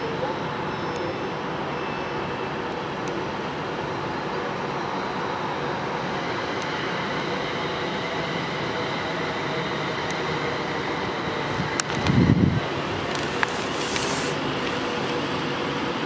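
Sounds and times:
train rumbling: 0:05.2 - 0:16.0.

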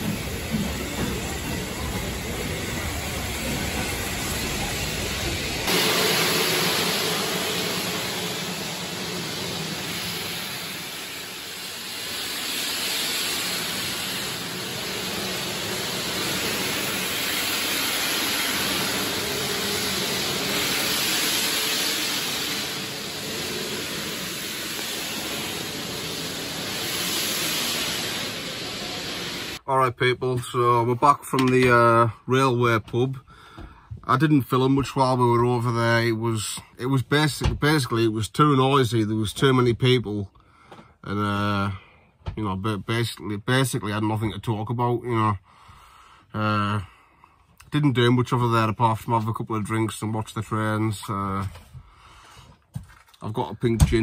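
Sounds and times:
low rumble: 0:00.0 - 0:29.6
steam hissing: 0:00.0 - 0:29.6.

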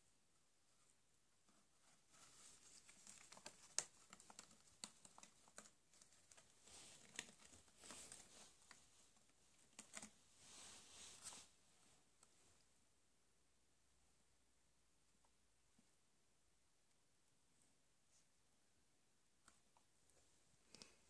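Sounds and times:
rabbit gnawing cardboard: 0:01.4 - 0:10.2
cardboard rustling: 0:01.5 - 0:11.6.

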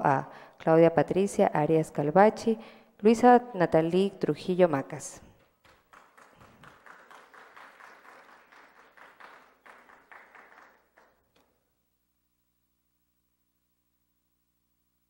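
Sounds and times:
audience applauding: 0:05.6 - 0:11.3
faint steady hum: 0:10.9 - 0:15.0.

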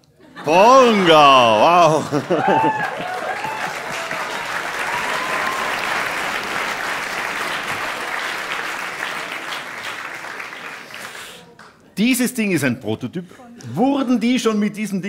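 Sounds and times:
audience applauding: 0:00.5 - 0:11.8.

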